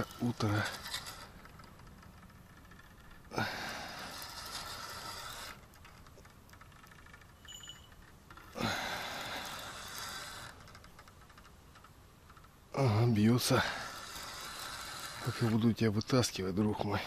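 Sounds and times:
fishing rod bite bell jingling: 0:07.4 - 0:08.1.

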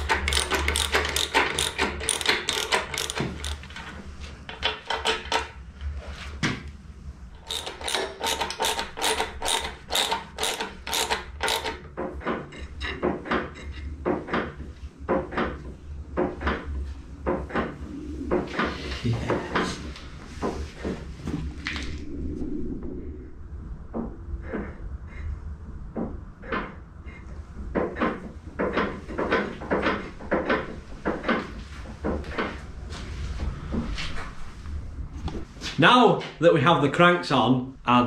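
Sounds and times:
ratchet spanner clicking: 0:00.0 - 0:03.9, 0:07.4 - 0:11.8.

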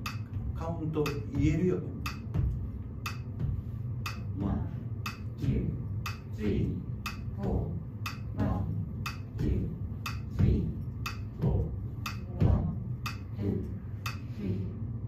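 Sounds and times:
metronome clicking: 0:00.0 - 0:00.3, 0:01.0 - 0:03.4, 0:04.0 - 0:04.4, 0:05.0 - 0:05.4, 0:06.0 - 0:07.4, 0:08.0 - 0:08.4, 0:09.0 - 0:10.4, 0:11.0 - 0:12.3, 0:13.0 - 0:13.3, 0:14.0 - 0:14.3.

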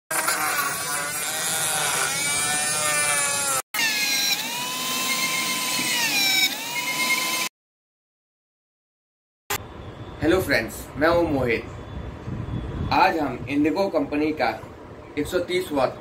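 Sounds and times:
rotary tool whining: 0:00.1 - 0:07.5.

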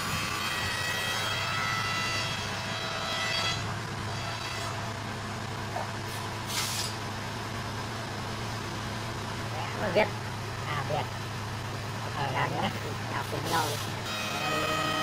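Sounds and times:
low engine hum: 0:03.5 - 0:15.0
brief scraping hiss: 0:06.1 - 0:07.0.

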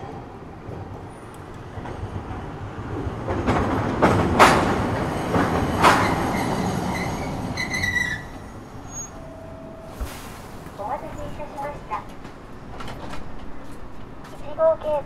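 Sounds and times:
streetcar running noise: 0:00.0 - 0:15.0
high-pitched squeal: 0:06.3 - 0:10.3.

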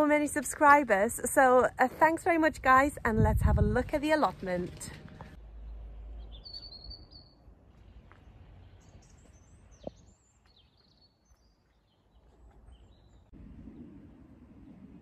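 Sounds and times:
low wind rumble: 0:00.0 - 0:10.3, 0:12.5 - 0:15.0
small birds chirping: 0:05.2 - 0:14.0.

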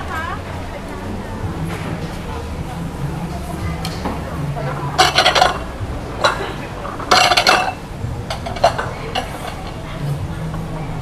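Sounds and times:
bowls and utensils clinking: 0:03.5 - 0:10.7.

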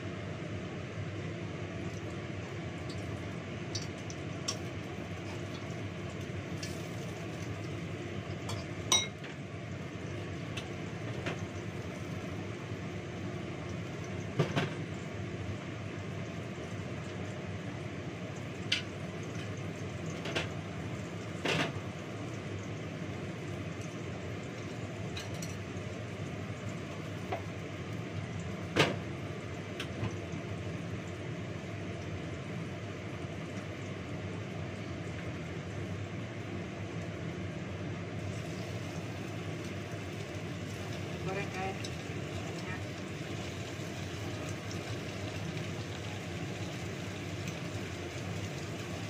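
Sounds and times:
range hood fan whooshing: 0:00.0 - 0:49.0
clinking pans plates and utensils: 0:08.4 - 0:09.3.

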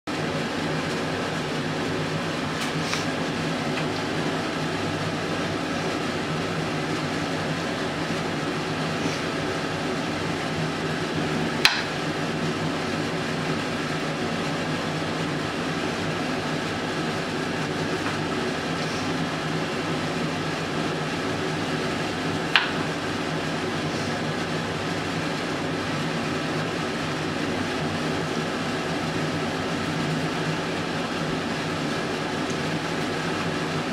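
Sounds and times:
mechanical hum: 0:00.1 - 0:33.9
sharp knocks: 0:11.6 - 0:12.0.

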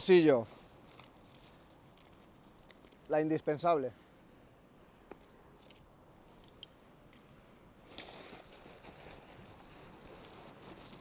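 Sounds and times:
rustling of bag fabric: 0:07.8 - 0:11.0.

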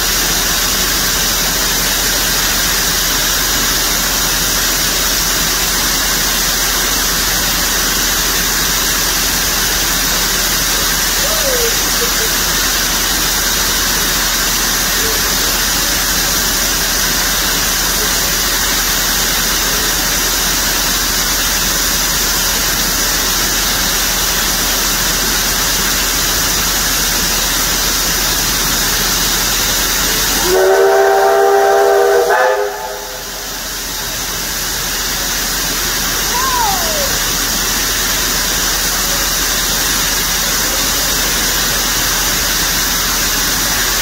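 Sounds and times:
steam locomotive hissing: 0:00.0 - 0:44.0
steam whistle chord: 0:30.3 - 0:33.7.

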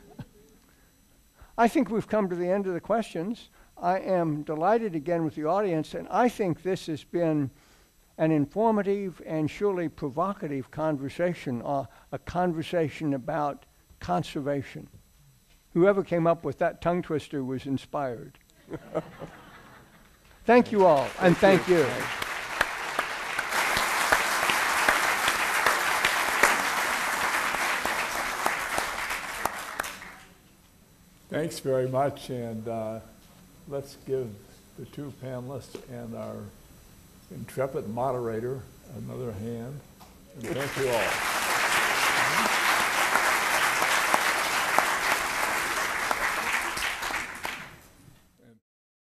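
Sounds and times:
audience applauding: 0:20.6 - 0:30.3, 0:40.4 - 0:47.9.

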